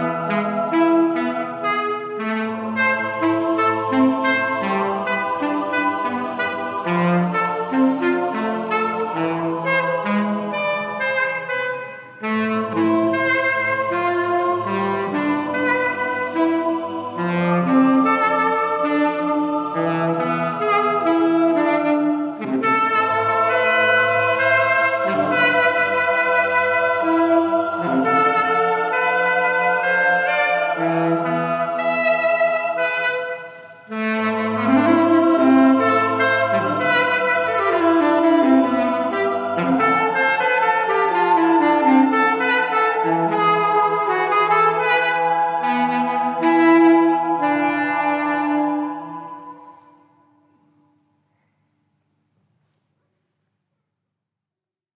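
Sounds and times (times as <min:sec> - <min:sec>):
choir sustained chords: 0:00.0 - 0:21.6, 0:22.2 - 0:50.8
tenor saxophone melody: 0:00.0 - 0:50.1.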